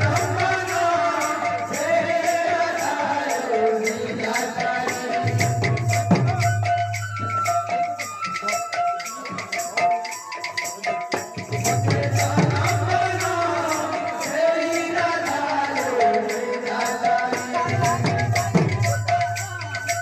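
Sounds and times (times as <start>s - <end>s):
metallic percussion strokes: 0.0s - 20.0s
held melodic tones: 4.3s - 20.0s.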